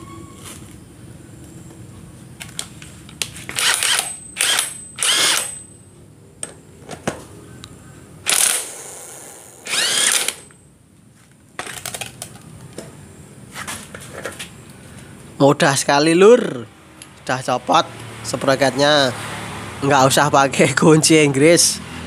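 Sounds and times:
impact wrench bursts: 0:03.5 - 0:05.7, 0:08.2 - 0:10.6.

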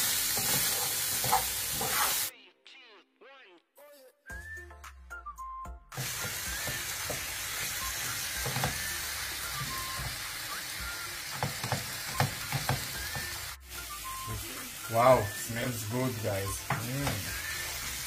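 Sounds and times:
food sizzling in a pan: 0:00.0 - 0:02.3, 0:05.9 - 0:18.0
wooden spatula scraping a pan: 0:00.4 - 0:02.3.

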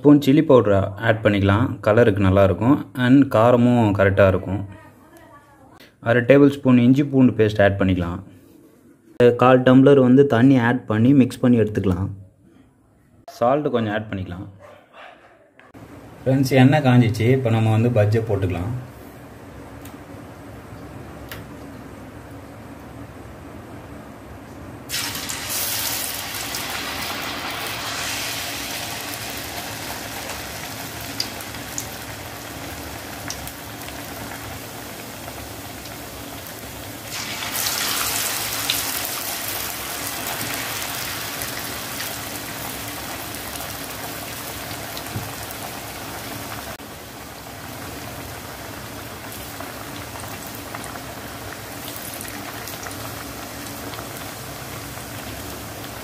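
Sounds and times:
batter sizzling in hot oil: 0:24.9 - 0:56.0.

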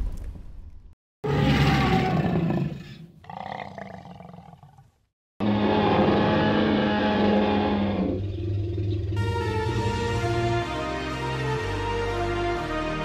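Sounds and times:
dinosaur roar: 0:01.2 - 0:09.3.

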